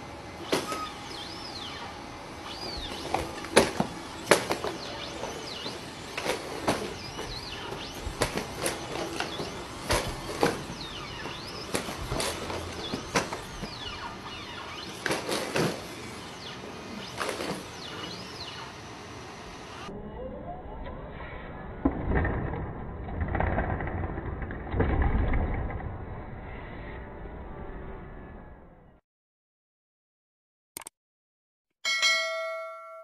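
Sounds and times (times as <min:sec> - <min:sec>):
hydraulic joints whining: 0:00.0 - 0:19.9.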